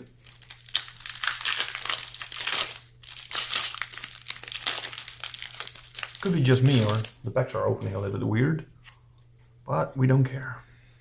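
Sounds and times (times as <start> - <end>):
foil wrapper crinkling: 0.2 - 7.2
foil wrapper tearing: 0.2 - 7.2.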